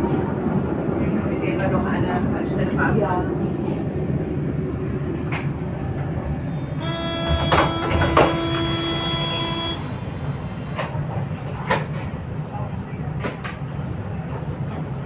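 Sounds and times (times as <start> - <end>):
tram rumble: 0.0 - 15.0
steady electronic tone: 6.7 - 10.4
sharp knocks: 7.2 - 8.6.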